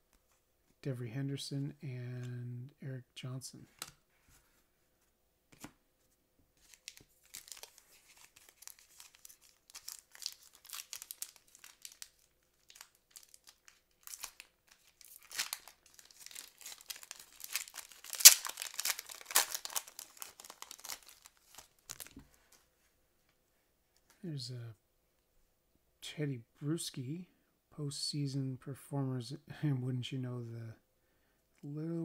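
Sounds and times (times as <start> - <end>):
foil wrapper tearing and crinkling: 6.6 - 22.1.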